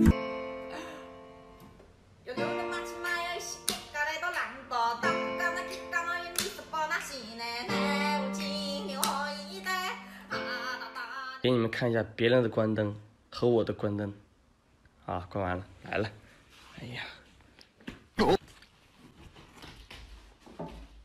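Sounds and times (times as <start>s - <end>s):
background music with plucked guitar: 0.0s - 1.6s.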